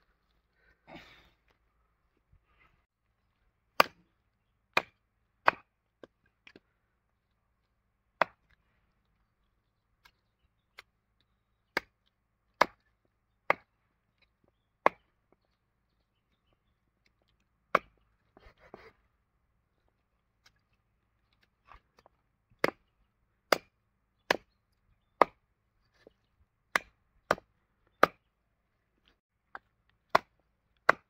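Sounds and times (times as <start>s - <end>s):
knife chopping meat on wood: 28.0s - 28.2s, 30.1s - 31.0s.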